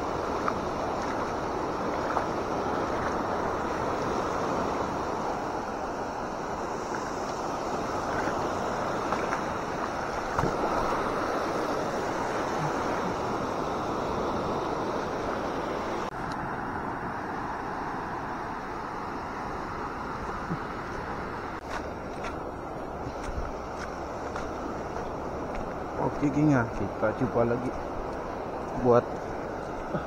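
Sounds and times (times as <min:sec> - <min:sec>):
waves washing over shallows: 0:00.0 - 0:30.0
wind rumbling on microphone: 0:00.0 - 0:30.0.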